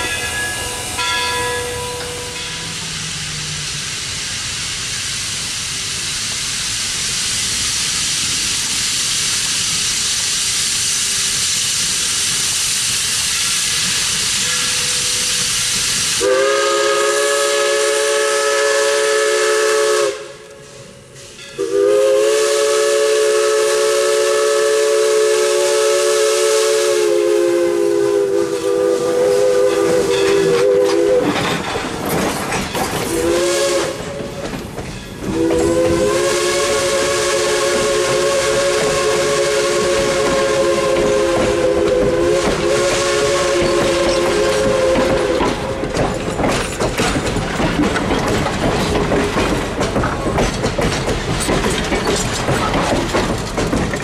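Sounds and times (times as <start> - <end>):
steam hissing: 0.0 - 54.0
train clattering past: 0.0 - 54.0
steam whistle blasts: 14.4 - 31.4, 33.1 - 34.2, 35.2 - 45.8.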